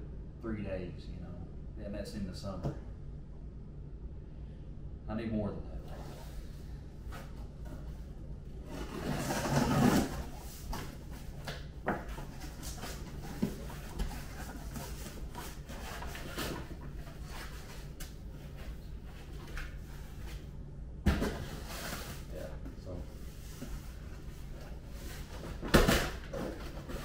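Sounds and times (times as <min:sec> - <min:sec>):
cardboard flaps rubbing: 0:08.6 - 0:18.0.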